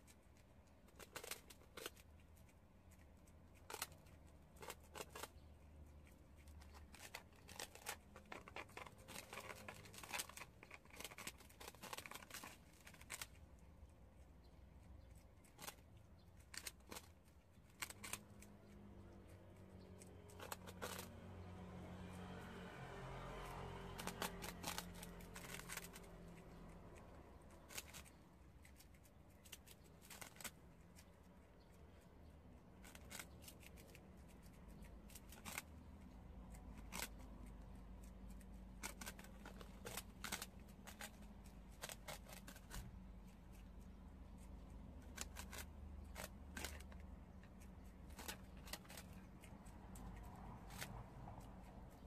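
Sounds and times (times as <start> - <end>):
crisp crunches of nibbling: 0.0 - 21.3, 23.2 - 52.0.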